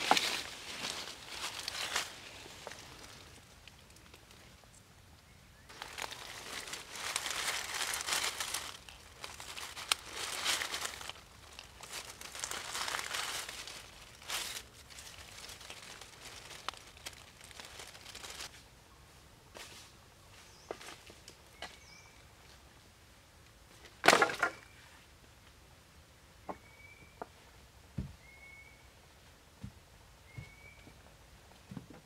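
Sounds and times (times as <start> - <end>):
dry leaves crackling and rustling: 0.0 - 4.7, 5.6 - 18.6.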